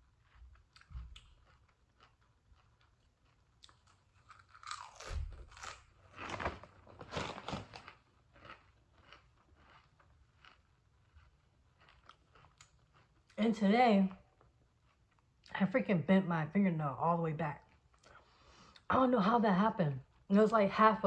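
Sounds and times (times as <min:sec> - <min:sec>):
chips crunching: 0:00.2 - 0:13.4
plastic bag crinkling: 0:04.8 - 0:08.6.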